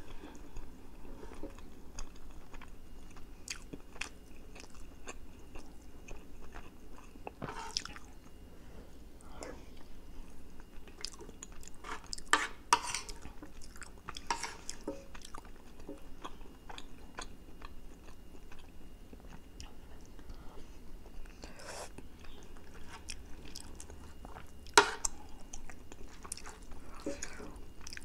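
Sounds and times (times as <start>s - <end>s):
wet chewing and smacking: 1.3s - 8.4s, 10.6s - 12.3s, 13.1s - 20.3s, 22.0s - 28.0s
spoon scraping ceramic plate: 11.8s - 13.2s, 14.3s - 14.7s.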